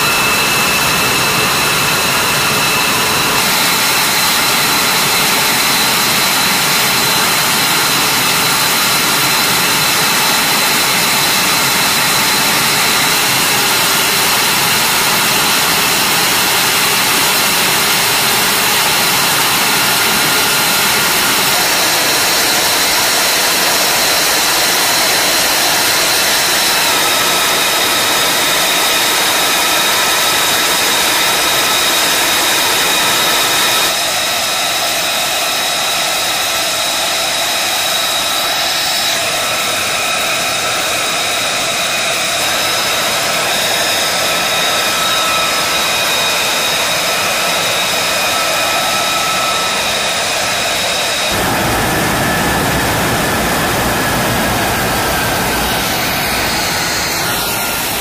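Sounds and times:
high turbine whine: 0:00.0 - 0:58.0
jet engines idling: 0:00.0 - 0:58.0.

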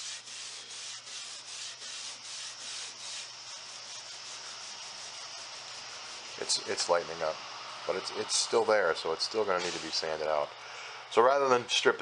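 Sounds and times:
steel wool rubbing on wood: 0:00.0 - 0:07.4.

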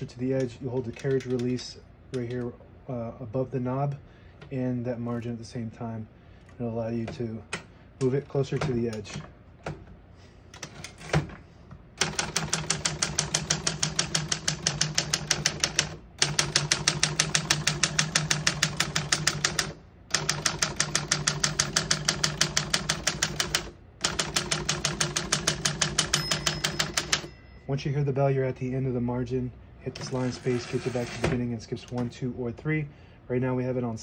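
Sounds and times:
manual typewriter typing: 0:00.4 - 0:01.6, 0:12.0 - 0:27.3, 0:29.9 - 0:31.4.

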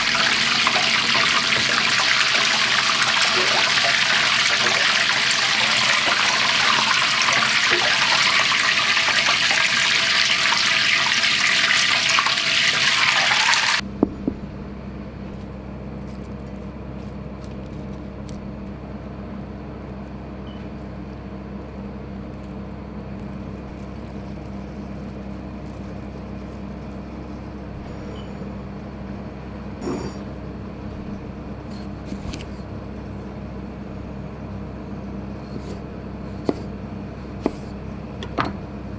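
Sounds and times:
food deep-frying in hot oil: 0:00.0 - 0:13.8
low steady hum: 0:13.8 - 0:38.9.

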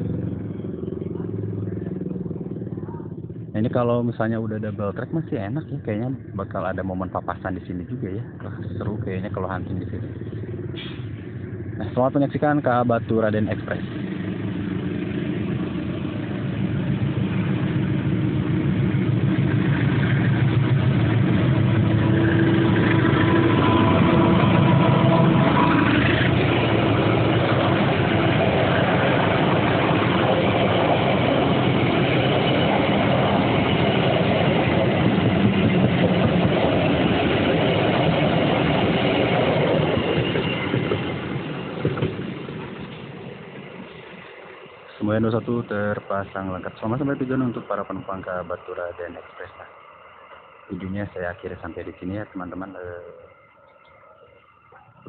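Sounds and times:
train wheels rumbling on rails: 0:00.0 - 0:54.0
diesel locomotive engine drone: 0:00.0 - 0:55.0.

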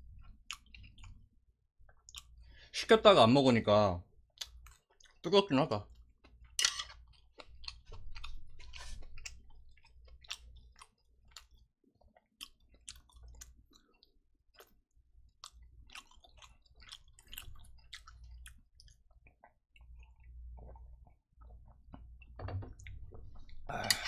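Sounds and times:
wet mouth chewing clicks: 0:00.5 - 0:01.2, 0:15.4 - 0:20.8.

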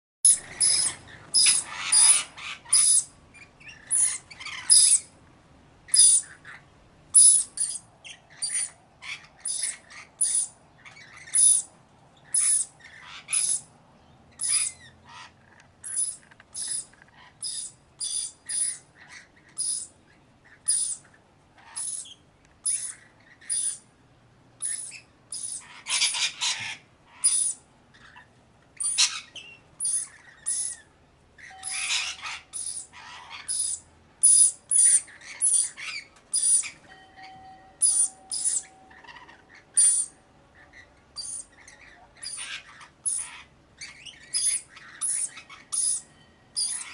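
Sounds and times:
parrot screeching: 0:00.3 - 0:03.1, 0:03.8 - 0:05.1, 0:05.9 - 0:06.6, 0:07.2 - 0:11.7, 0:12.3 - 0:13.7, 0:14.4 - 0:19.9, 0:21.6 - 0:23.8, 0:24.6 - 0:30.8, 0:31.4 - 0:36.9, 0:37.8 - 0:46.9.

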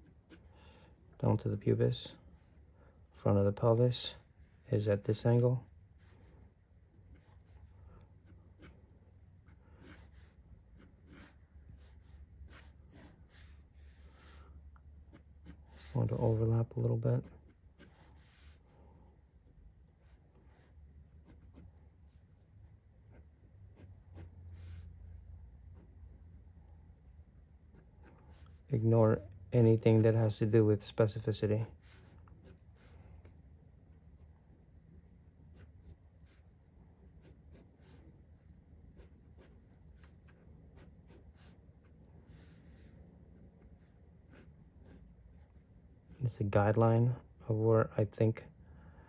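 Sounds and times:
pencil scratching on paper: 0:00.0 - 0:00.5, 0:07.0 - 0:18.6, 0:20.0 - 0:21.8, 0:23.0 - 0:24.9, 0:31.6 - 0:33.0, 0:35.5 - 0:46.3
low steady hum: 0:00.0 - 0:49.0.

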